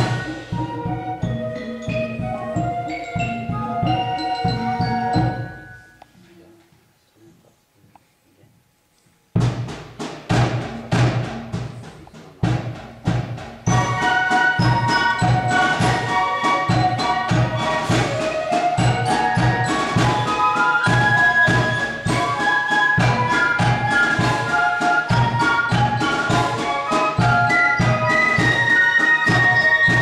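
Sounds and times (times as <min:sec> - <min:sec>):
snare drums: 0:00.0 - 0:05.7, 0:09.3 - 0:30.0
flutes playing melody: 0:00.0 - 0:06.0, 0:13.7 - 0:30.0.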